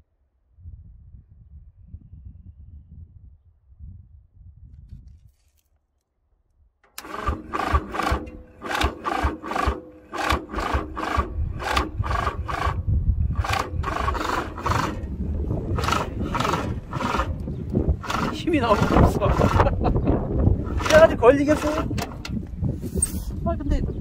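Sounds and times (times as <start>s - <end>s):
diesel engine cranking on starter: 6.8s - 19.8s, 20.6s - 22.5s.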